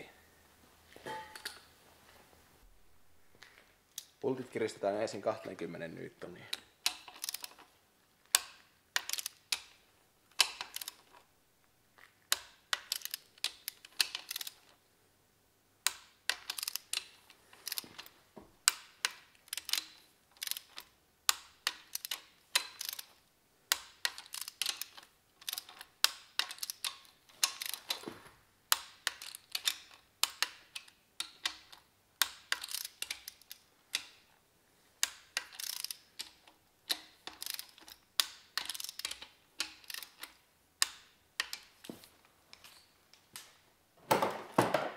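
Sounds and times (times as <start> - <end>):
torque wrench ratchet clicking: 21.3 - 23.1, 32.2 - 34.1, 35.1 - 36.0, 36.9 - 40.2.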